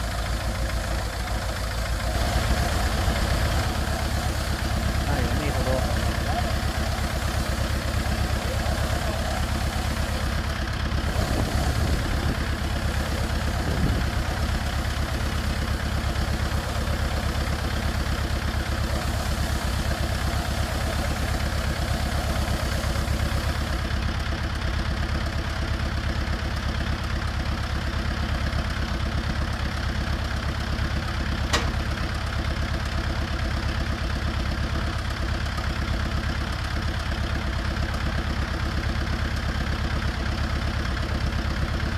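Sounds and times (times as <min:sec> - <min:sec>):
tractor engine running: 0:00.0 - 0:41.9
short click: 0:31.5 - 0:31.8.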